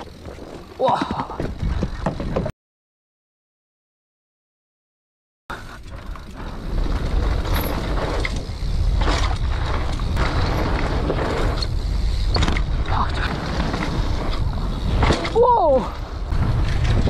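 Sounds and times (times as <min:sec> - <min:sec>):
tyres crunching over gravel: 0:00.0 - 0:02.2
bike rattling and knocking: 0:00.0 - 0:02.5, 0:05.5 - 0:17.0
wind buffeting microphone: 0:06.4 - 0:17.0.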